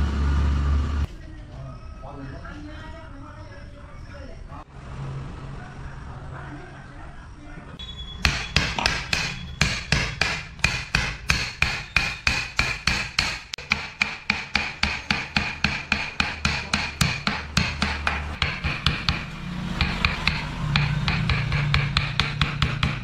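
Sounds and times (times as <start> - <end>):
mallet striking wood chisel: 8.2 - 23.0.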